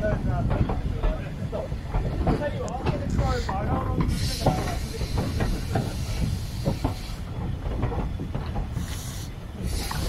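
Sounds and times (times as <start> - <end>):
train wheels rumbling on track: 0.0 - 10.0
steam hissing: 3.1 - 7.5, 8.7 - 10.0.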